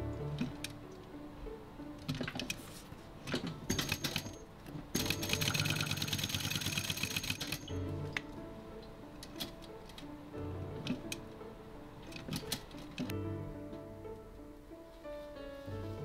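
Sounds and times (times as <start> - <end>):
sewing machine stitching leather: 3.3 - 4.4, 5.0 - 7.7.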